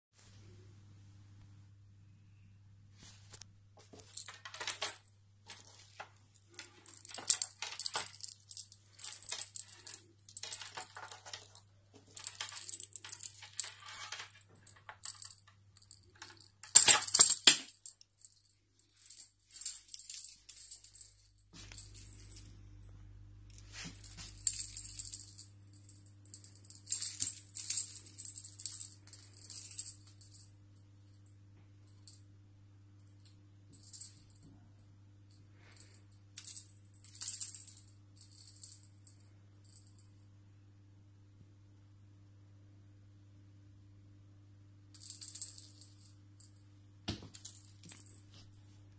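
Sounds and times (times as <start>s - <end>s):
small jingle bell tinkling: 4.0s - 22.9s, 23.5s - 32.2s, 33.0s - 34.6s, 35.3s - 40.2s, 45.0s - 46.6s, 47.3s - 48.5s.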